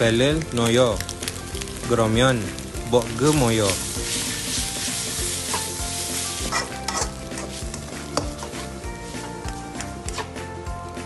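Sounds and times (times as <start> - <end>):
noodles frying hiss: 0.0 - 11.0
spatula scraping pan: 3.9 - 10.3.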